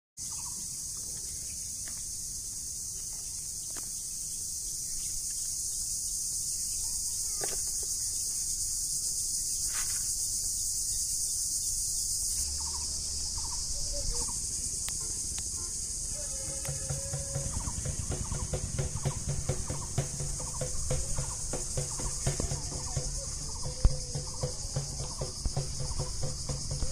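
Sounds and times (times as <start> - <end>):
insect chorus drone: 0.2 - 26.9.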